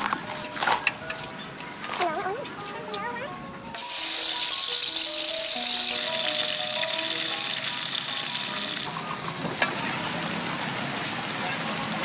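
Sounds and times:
food deep-frying in hot oil: 3.8s - 12.0s.

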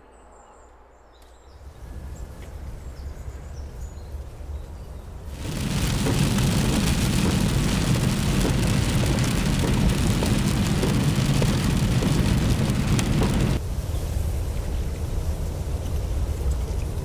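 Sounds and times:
car engine and tyres rumbling: 1.7s - 13.9s
rain ticking on car windscreen: 5.3s - 13.6s.

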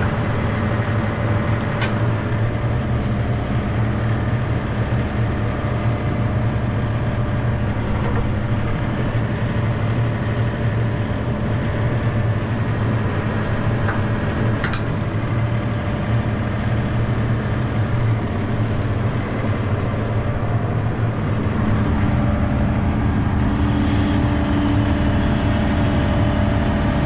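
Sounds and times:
diesel engine running: 0.0s - 27.0s
high whine: 6.2s - 27.0s.

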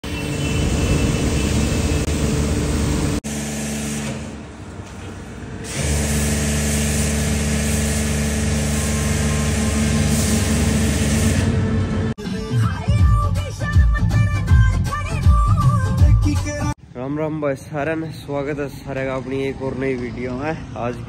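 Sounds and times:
pressure washer motor drone: 0.0s - 12.2s
foam spray hissing: 5.7s - 11.5s.

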